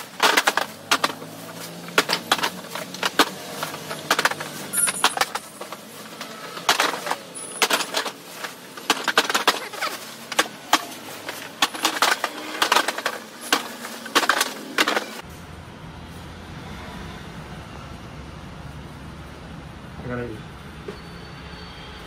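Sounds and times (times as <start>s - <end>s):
hard objects clacking and rattling: 0.0s - 15.2s.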